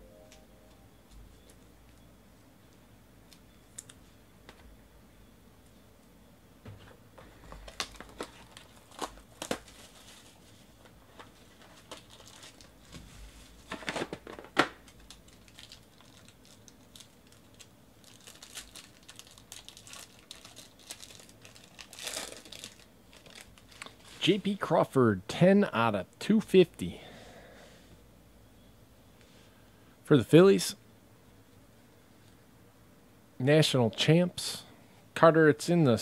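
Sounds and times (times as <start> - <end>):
foil pack crinkling and tearing: 7.6 - 10.5, 11.2 - 12.9, 13.6 - 24.2.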